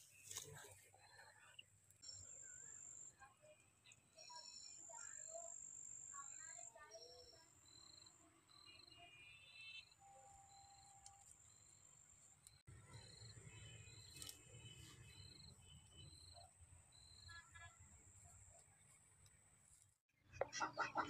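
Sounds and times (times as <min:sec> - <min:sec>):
cricket chirping: 0:04.2 - 0:18.2.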